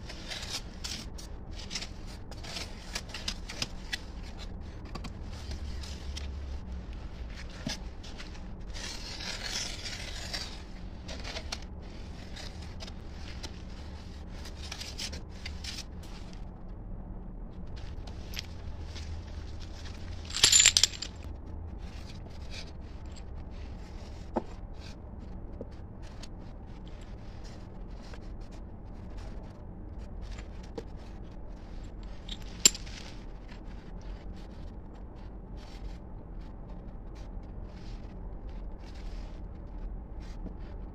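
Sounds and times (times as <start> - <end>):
clatter: 19.8 - 22.2.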